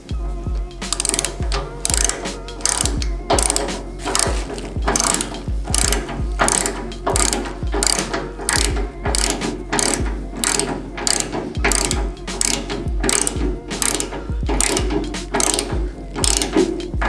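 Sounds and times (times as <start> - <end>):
ratchet clicking: 0.0 - 17.0.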